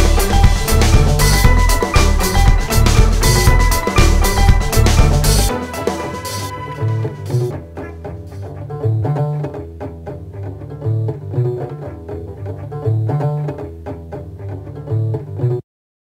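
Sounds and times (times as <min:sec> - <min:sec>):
repeating low bass line: 0:00.0 - 0:07.5
short high notes: 0:00.0 - 0:07.6.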